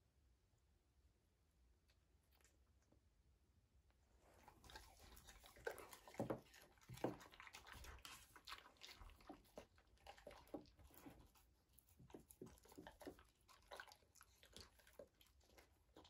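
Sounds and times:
dogs eating off a table: 0:04.3 - 0:16.0.

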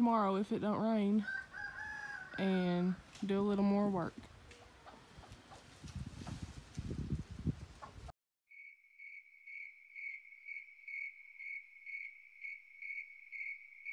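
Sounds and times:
wind rumble on microphone: 0:04.1 - 0:08.1
cricket chirping: 0:08.5 - 0:13.9.

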